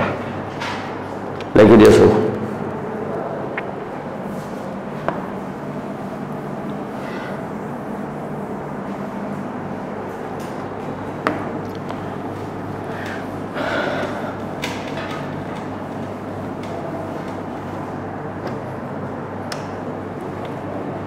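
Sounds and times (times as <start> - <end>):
low background hum: 0.0 - 21.0
cloth wiping a whiteboard: 4.2 - 4.8, 5.4 - 10.2.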